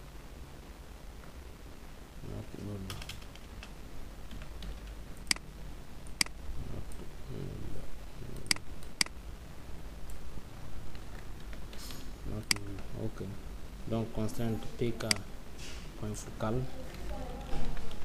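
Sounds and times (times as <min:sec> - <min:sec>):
keyboard typing: 0:02.9 - 0:05.4.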